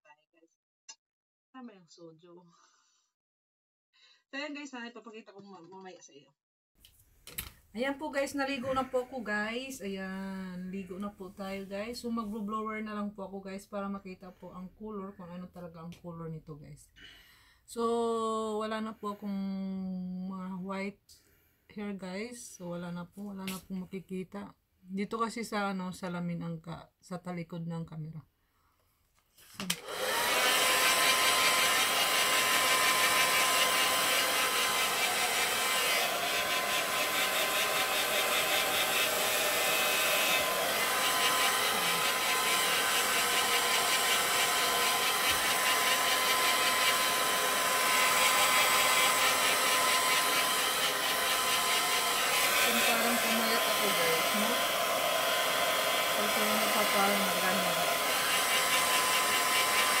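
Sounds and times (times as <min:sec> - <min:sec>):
hair dryer running: 0:29.6 - 1:00.0.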